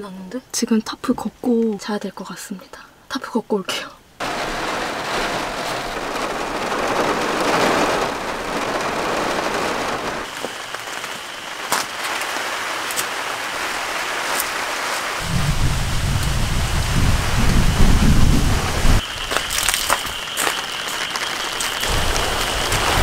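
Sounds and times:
rumble of thunder: 0:04.2 - 0:10.3, 0:15.2 - 0:19.0, 0:21.8 - 0:23.0
rain pattering on window glass: 0:04.2 - 0:15.2, 0:19.0 - 0:23.0.

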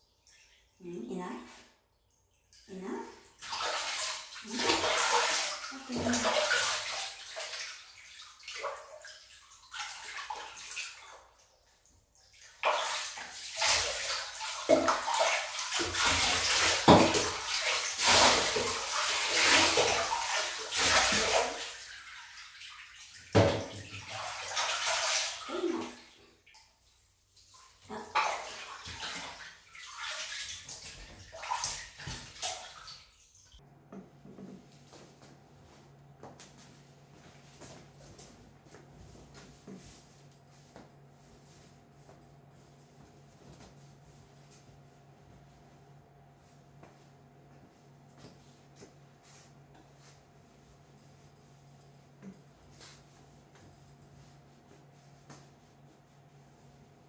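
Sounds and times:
water poured and splashing: 0:00.1 - 0:33.6.

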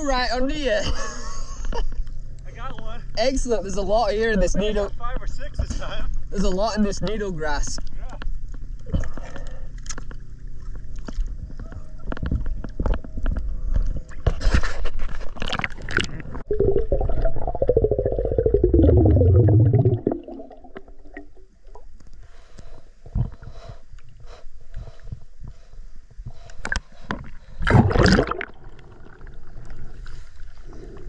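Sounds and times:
water splashing and sloshing: 0:08.4 - 0:22.3, 0:26.3 - 0:30.9
underwater gurgling and bubbling: 0:15.4 - 0:21.8, 0:27.6 - 0:30.1.

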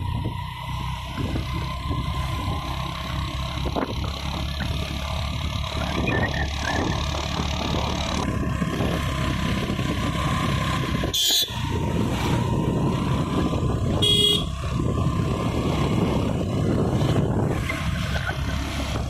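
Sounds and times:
vehicle engine and road rumble: 0:00.0 - 0:19.0
car horn honks: 0:11.1 - 0:11.6, 0:13.9 - 0:14.6.

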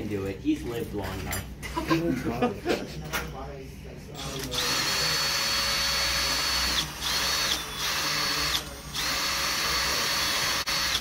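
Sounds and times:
cordless drill motor whine: 0:04.2 - 0:11.0.

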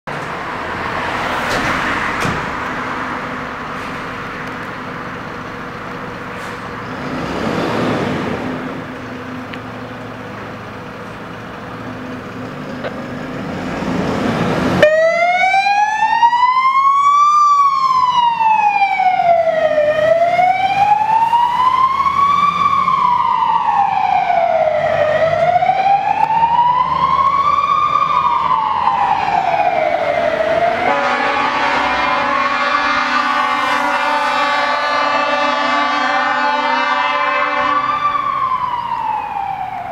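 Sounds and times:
engine and road noise: 0:00.0 - 0:39.9
fire engine siren wailing: 0:12.9 - 0:39.9.

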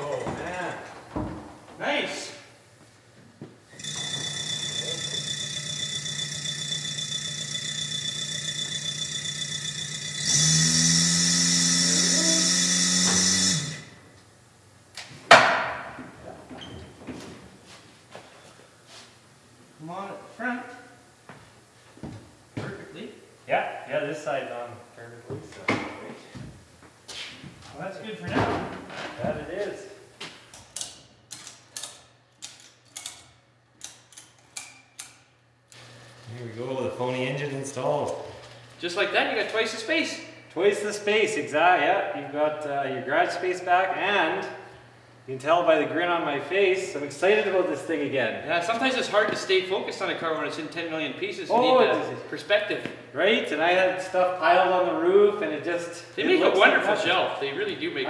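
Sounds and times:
electric hoist motor running: 0:03.7 - 0:14.1, 0:35.7 - 0:39.8.

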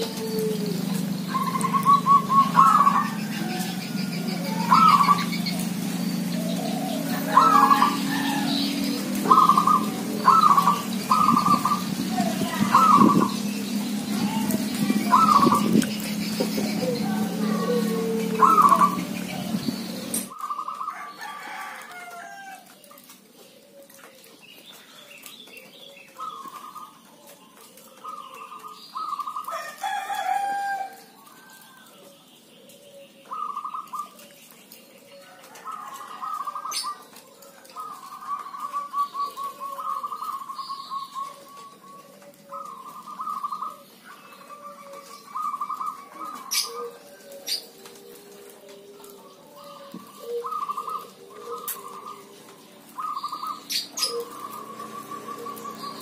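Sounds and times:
soft low coos: 0:00.0 - 0:05.3, 0:16.6 - 0:20.3, 0:44.4 - 0:53.2
rooster crowing: 0:00.0 - 0:05.4, 0:06.6 - 0:10.7, 0:16.8 - 0:19.2, 0:20.4 - 0:22.8, 0:29.4 - 0:31.9, 0:35.1 - 0:37.0
doves trilled cooing: 0:00.0 - 0:56.0.

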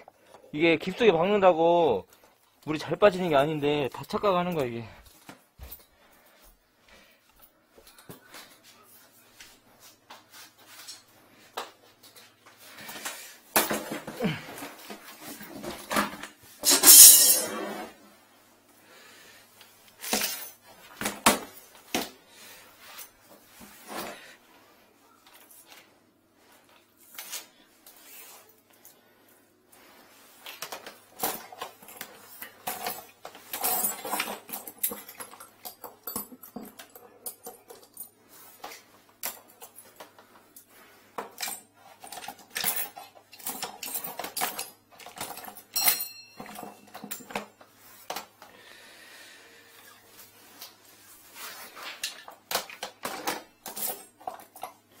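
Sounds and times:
metal tools clattering in case: 0:12.2 - 0:17.9, 0:20.0 - 0:21.8, 0:30.5 - 0:40.6, 0:41.2 - 0:48.3, 0:51.8 - 0:55.0
short metallic ring: 0:16.7 - 0:17.5.

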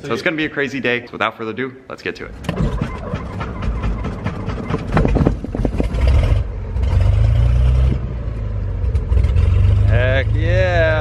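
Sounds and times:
aircraft engine starting: 0:02.3 - 0:06.6.

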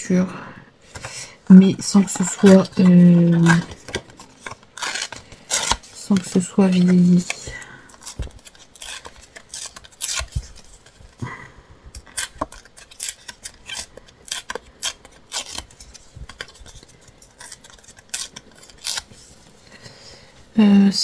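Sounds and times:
paper tearing and crackling: 0:02.0 - 0:11.2, 0:12.0 - 0:19.3.

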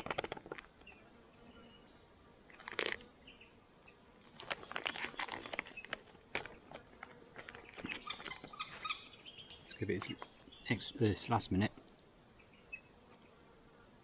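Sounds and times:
foil pouch crinkling: 0:02.6 - 0:03.0, 0:04.4 - 0:08.4.

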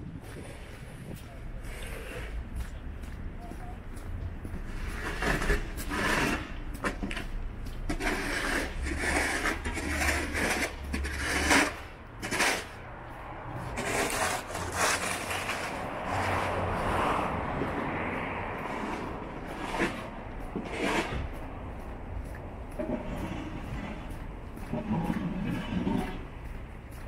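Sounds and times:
snow scraper scraping ice: 0:04.6 - 0:07.3, 0:07.9 - 0:12.8, 0:13.7 - 0:16.6, 0:18.7 - 0:20.0, 0:20.6 - 0:21.2.

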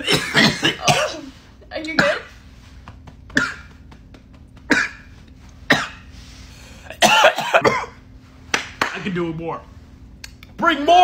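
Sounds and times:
man coughing hard: 0:00.0 - 0:01.3, 0:03.3 - 0:03.9, 0:04.6 - 0:06.1, 0:06.8 - 0:08.1.

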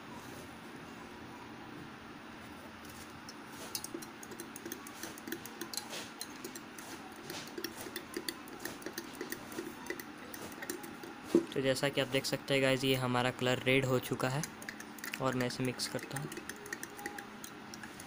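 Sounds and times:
spoon clinking in glass: 0:03.6 - 0:06.8.

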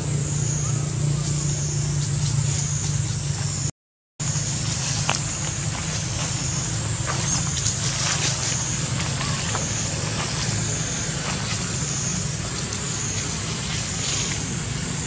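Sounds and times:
low hum: 0:00.0 - 0:15.0
rustling in dry leaves: 0:01.0 - 0:15.0.

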